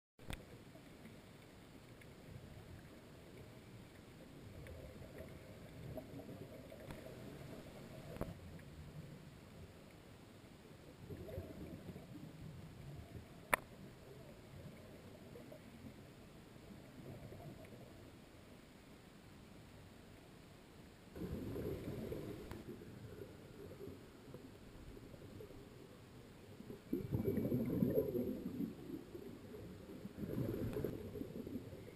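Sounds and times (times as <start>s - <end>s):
faint clicks: 0.2s - 10.1s, 11.1s - 16.1s, 16.8s - 18.1s, 21.8s - 25.9s, 26.6s - 31.7s
underwater bubbles gurgling: 0.2s - 18.3s, 21.1s - 31.9s
muffled underwater bubbles gurgling: 21.2s - 31.9s.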